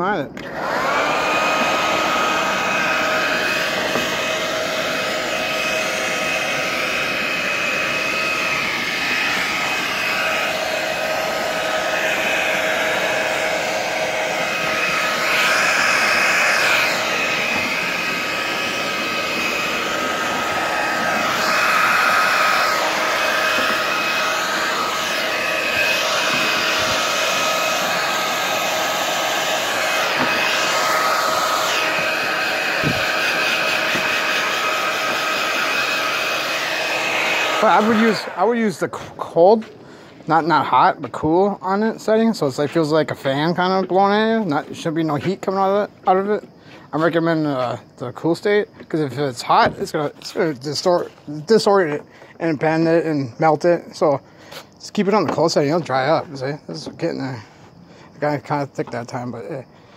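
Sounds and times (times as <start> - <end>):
hair dryer running: 0.4 - 39.0.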